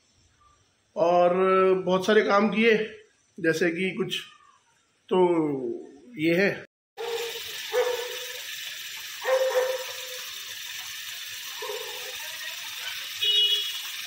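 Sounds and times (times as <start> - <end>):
water pouring into clay pot: 7.0 - 14.0.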